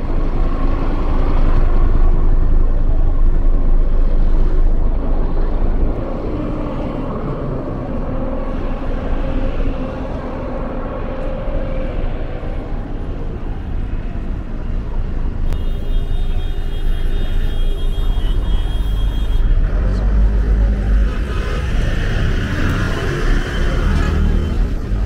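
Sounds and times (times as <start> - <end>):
heavy low vehicle rumble: 0.0 - 25.0
vehicles passing: 0.0 - 25.0.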